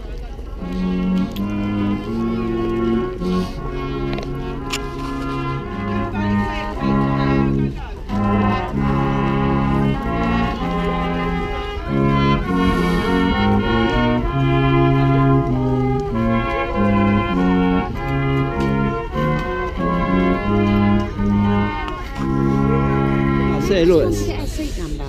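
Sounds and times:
brass instruments playing chords: 0:00.0 - 0:24.6.

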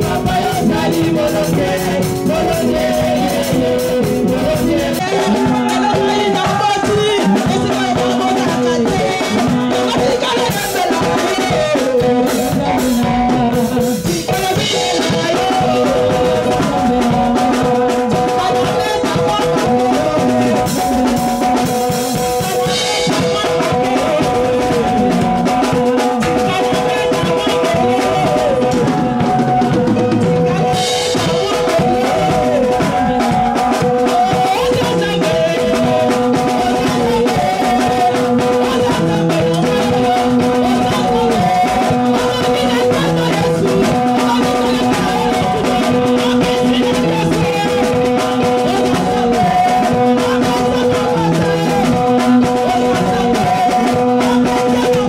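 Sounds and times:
drum kit steady beat: 0:00.0 - 0:55.0.

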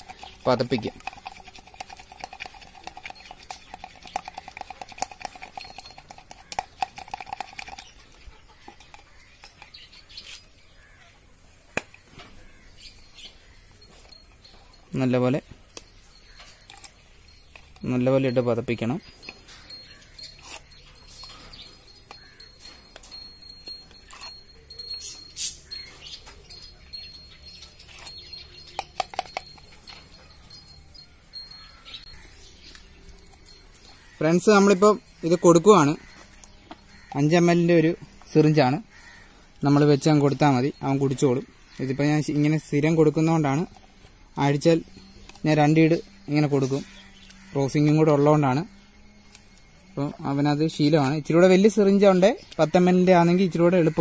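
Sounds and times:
utensil beating in plastic cup: 0:00.0 - 0:07.9.

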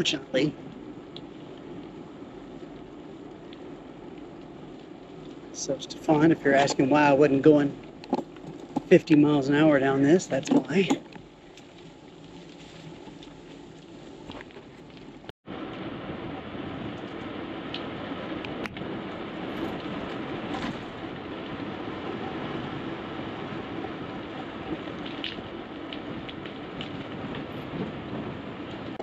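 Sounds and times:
small clicks from bumps: 0:00.0 - 0:15.8, 0:23.8 - 0:29.0
bicycle tyres on tarmac: 0:00.0 - 0:29.0
bike rattling: 0:00.0 - 0:29.0.

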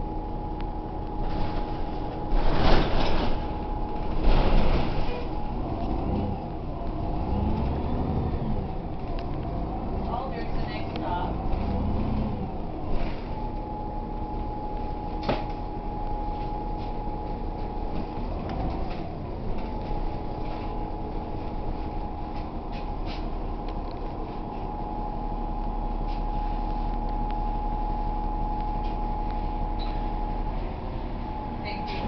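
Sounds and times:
bus drivetrain drone: 0:00.0 - 0:32.0
road rumble: 0:00.0 - 0:32.0
high whine: 0:12.2 - 0:32.0.

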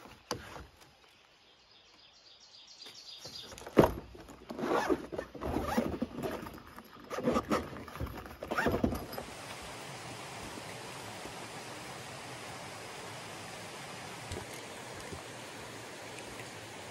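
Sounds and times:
zipper rasping: 0:04.5 - 0:09.0.

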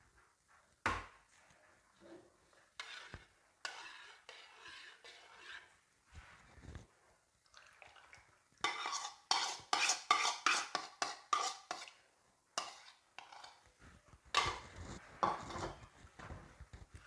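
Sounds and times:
metal spoon scraping bowl: 0:02.8 - 0:05.8, 0:08.6 - 0:12.0, 0:12.6 - 0:13.7, 0:14.3 - 0:15.9.

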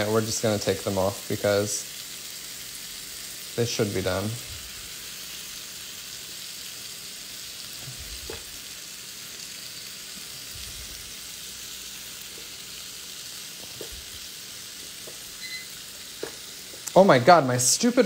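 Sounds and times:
shrimp sizzling in frying pan: 0:00.0 - 0:18.0
spatula taps: 0:16.2 - 0:16.9.

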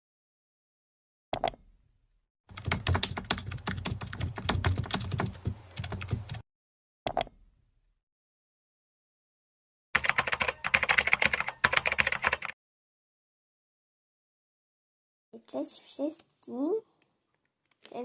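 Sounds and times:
computer keyboard typing: 0:02.5 - 0:06.4, 0:10.0 - 0:12.6.

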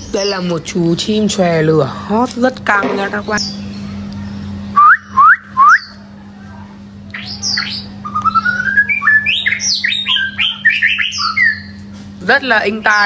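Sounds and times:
bird singing whistles and trills: 0:03.2 - 0:06.0, 0:07.1 - 0:11.8.

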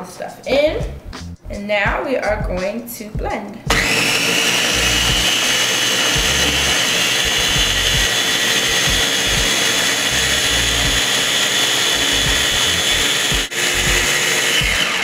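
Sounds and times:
food processor motor whining: 0:03.7 - 0:15.0.

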